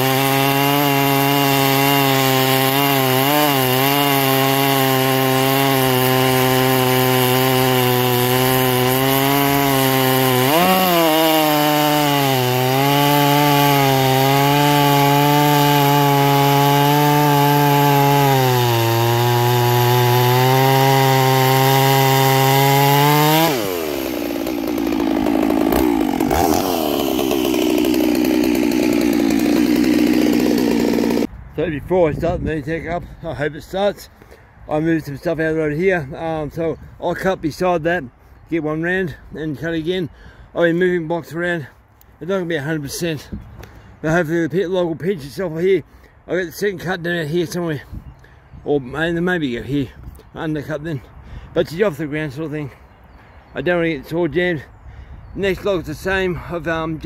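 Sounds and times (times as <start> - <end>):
chainsaw cutting log: 0.0 - 31.3, 38.8 - 48.4.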